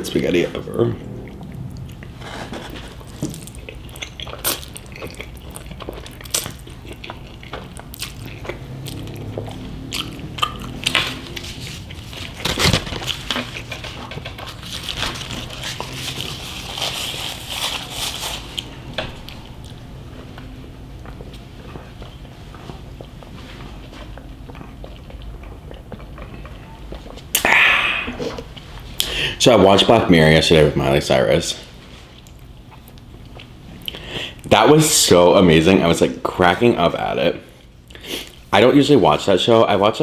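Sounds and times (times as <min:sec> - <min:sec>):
chewing with wet mouth smacks: 0:00.9 - 0:17.8, 0:18.4 - 0:27.4, 0:32.1 - 0:34.1.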